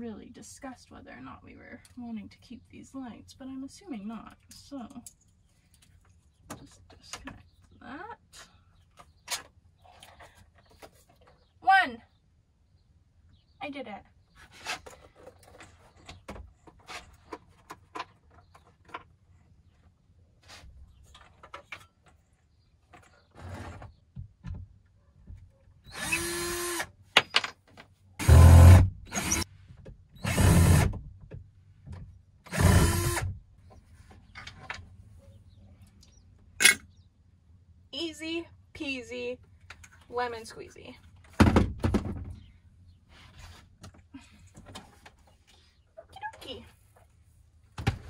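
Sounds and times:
cordless drill running: 0:25.9 - 0:26.9, 0:28.2 - 0:29.4, 0:30.2 - 0:30.8, 0:32.5 - 0:33.3.

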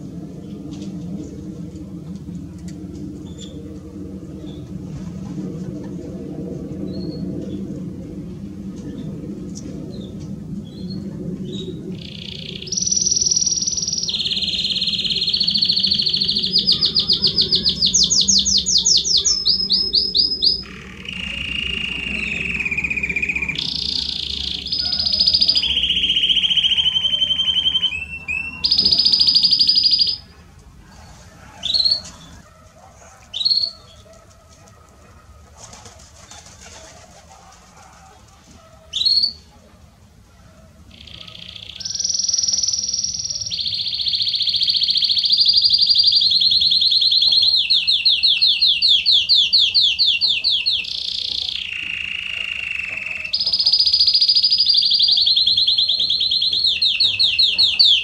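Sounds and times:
canary singing trills: 0:03.2 - 0:03.7, 0:09.9 - 0:34.0, 0:38.8 - 0:39.6, 0:40.8 - 0:58.0.

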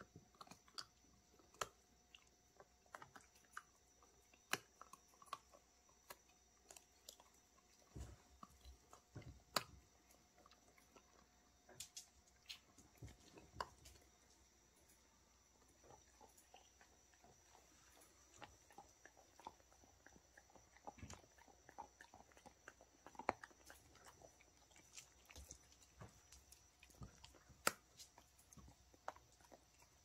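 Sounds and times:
dogs chewing jerky: 0:15.8 - 0:30.0.

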